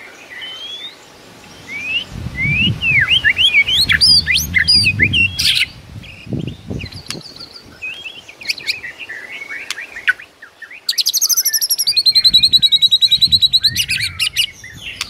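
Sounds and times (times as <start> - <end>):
bird singing whistled notes: 0.4 - 15.0
harsh rasping bird note: 1.2 - 6.8
low rumble: 1.2 - 7.1.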